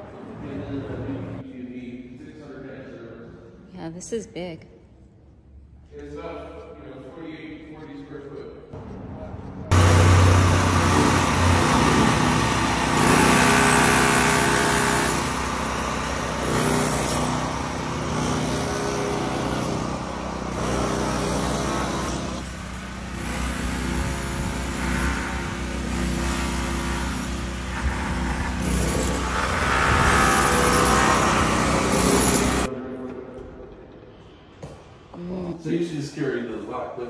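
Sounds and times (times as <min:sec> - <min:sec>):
cars passing by: 0:09.7 - 0:12.9.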